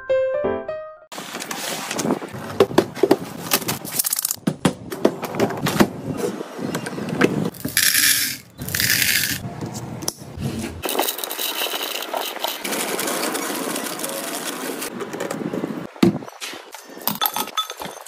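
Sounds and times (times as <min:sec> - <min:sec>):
snack packaging rustling: 0:07.5 - 0:09.4
cornflakes pouring into canister: 0:07.6 - 0:09.4.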